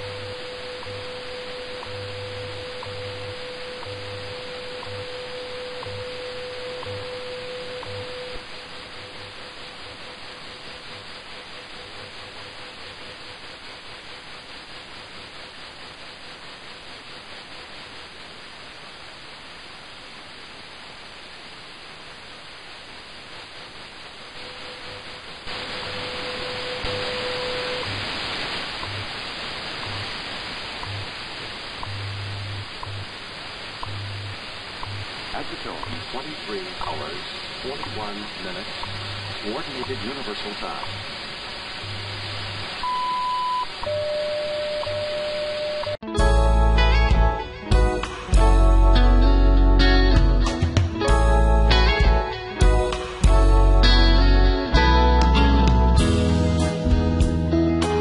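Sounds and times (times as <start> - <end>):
low radio pulses: 0.0 - 42.9
radio static hiss: 0.0 - 46.0, 46.9 - 56.0
radio tone: 24.2 - 31.1, 34.8 - 46.0.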